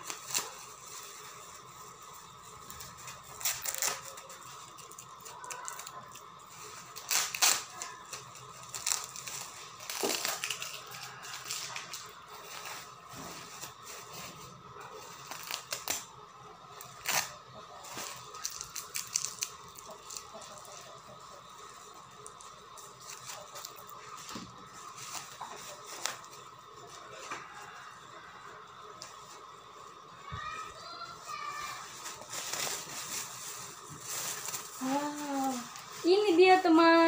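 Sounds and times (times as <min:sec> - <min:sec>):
plastic bag crinkling and tearing: 0:00.0 - 0:16.1, 0:16.8 - 0:20.9, 0:31.3 - 0:37.0.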